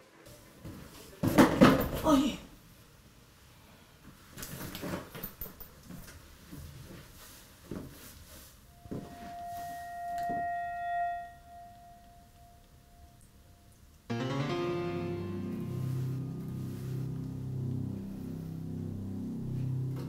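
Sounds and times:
keyboard film score: 14.1 - 20.0.

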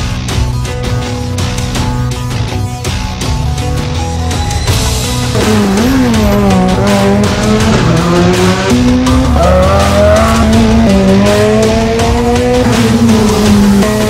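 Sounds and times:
loud background music: 0.0 - 14.0
rally car engines revving: 4.8 - 14.0.

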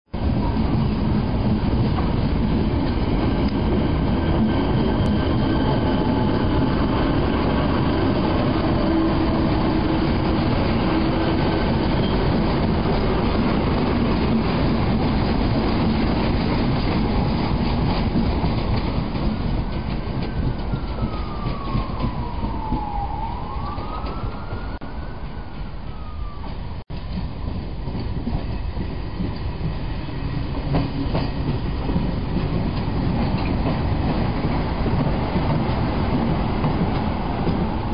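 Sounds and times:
electric train hum: 0.2 - 37.9.

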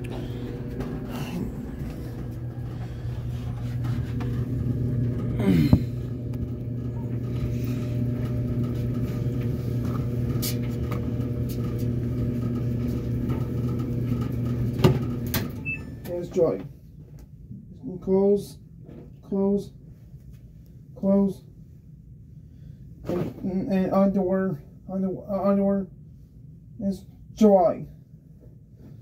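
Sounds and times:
clothes dryer humming: 0.0 - 18.6.

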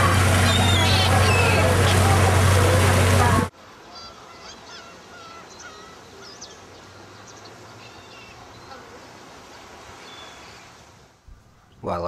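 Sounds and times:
gulls crying: 0.0 - 10.7
steady background hiss: 2.8 - 12.0.

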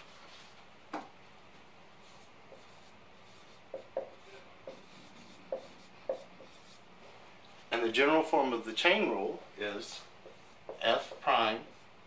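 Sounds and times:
marker squeaking on whiteboard: 2.0 - 6.8.

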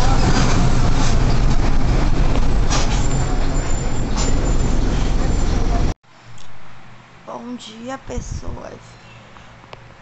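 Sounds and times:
bus engine and road rumble: 0.0 - 7.3.

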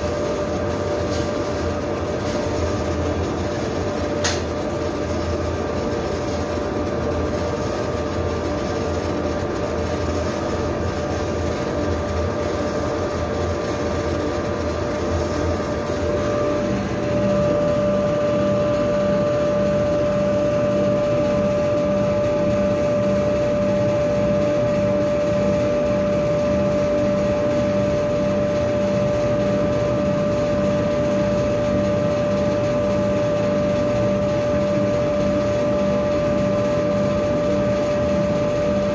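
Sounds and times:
high whine: 0.0 - 21.8
laser engraver machine hum: 0.0 - 38.9.

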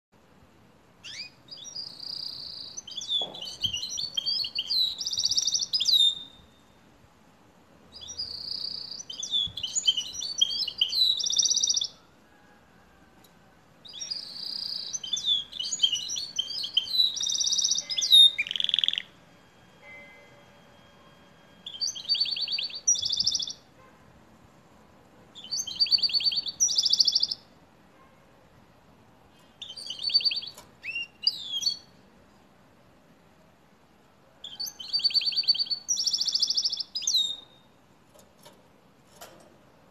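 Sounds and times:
canary twittering trills: 1.0 - 6.6, 7.9 - 12.0, 13.9 - 19.2, 21.6 - 23.8, 25.4 - 27.5, 29.4 - 31.9, 34.4 - 37.7.

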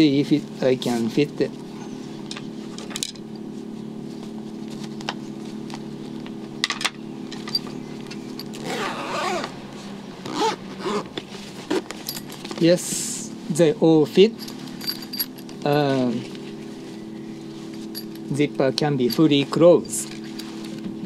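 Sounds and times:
steady low hum: 0.0 - 21.0
fabric rustling scrape: 8.6 - 12.6.

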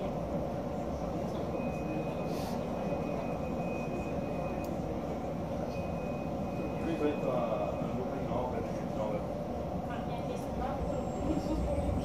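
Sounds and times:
high-pitched whine: 0.0 - 9.3
tram low rumble: 0.0 - 12.0.

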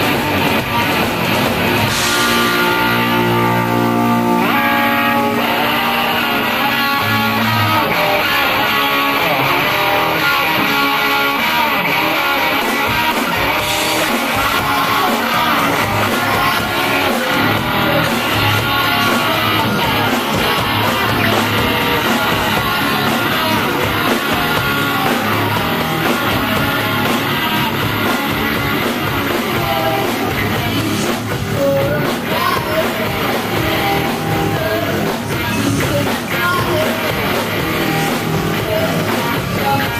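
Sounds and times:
drums: 0.0 - 39.9
electric guitar: 0.0 - 39.9
woman singing into microphone: 31.6 - 33.3.

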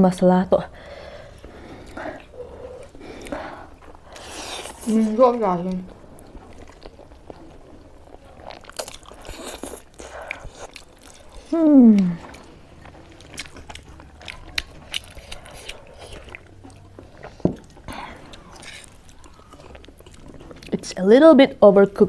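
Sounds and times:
chewing and slurping noodles: 1.2 - 21.0.

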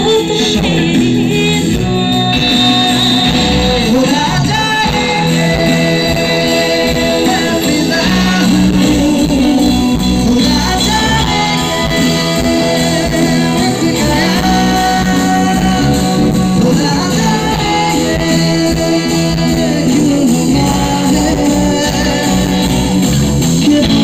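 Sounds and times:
live band accompaniment: 0.0 - 24.0
woman singing: 0.0 - 24.0.

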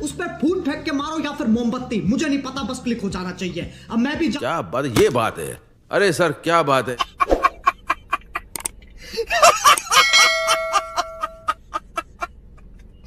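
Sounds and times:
man laughing hard: 6.9 - 13.0.

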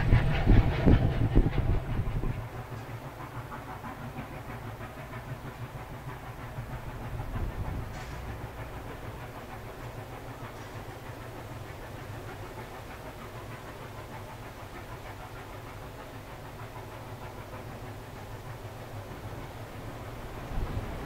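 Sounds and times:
strong wind on microphone: 0.0 - 2.4
steam locomotive exhaust: 0.0 - 21.0.

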